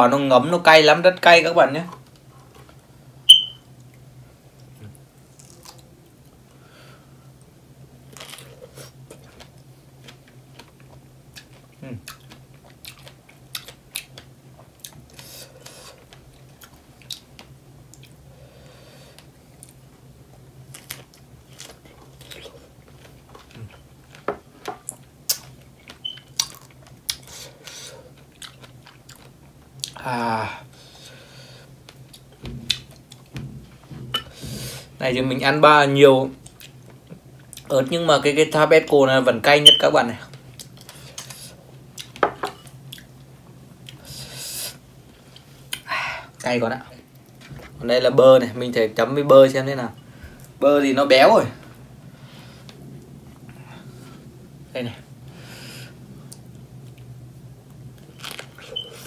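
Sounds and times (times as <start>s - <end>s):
chewing strawberries: 8.1s - 18.2s, 20.7s - 30.0s
chewing and biting: 9.1s - 15.2s, 28.2s - 30.0s.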